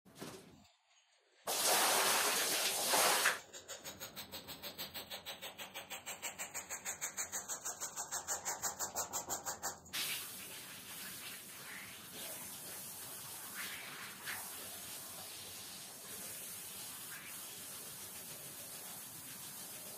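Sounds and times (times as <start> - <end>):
hose spray hissing: 1.5 - 3.4
scrub brush scrubbing mat: 1.5 - 19.9.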